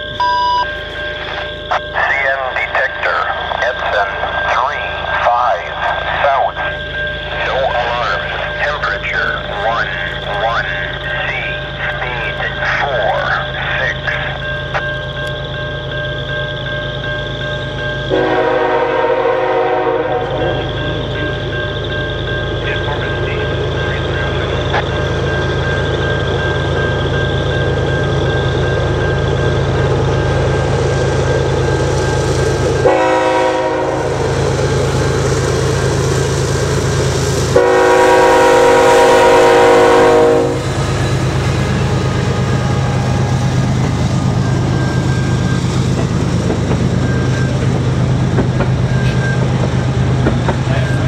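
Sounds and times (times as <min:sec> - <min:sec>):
locomotive engine droning: 0:00.0 - 0:51.0
train wheels rolling on rails: 0:00.0 - 0:51.0
train air horn blasts: 0:18.1 - 0:20.7, 0:32.8 - 0:34.3, 0:37.5 - 0:40.7.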